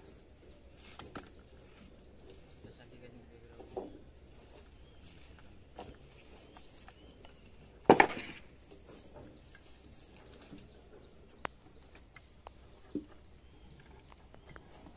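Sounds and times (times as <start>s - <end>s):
wood knocking on wood: 7.8s - 8.4s.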